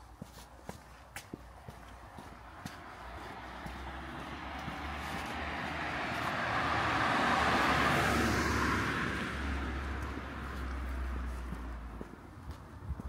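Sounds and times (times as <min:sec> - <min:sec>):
car passing by: 0:02.1 - 0:12.2.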